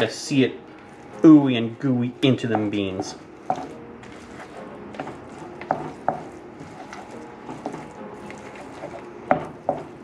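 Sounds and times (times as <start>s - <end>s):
spoon stirring beans in skillet: 2.3s - 10.0s.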